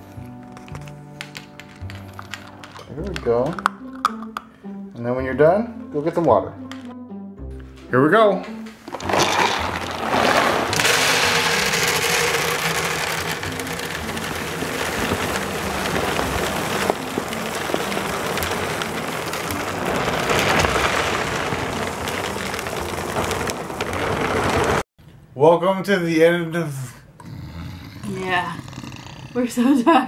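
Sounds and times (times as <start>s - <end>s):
dry kibble pouring into plastic bin: 8.9s - 24.8s.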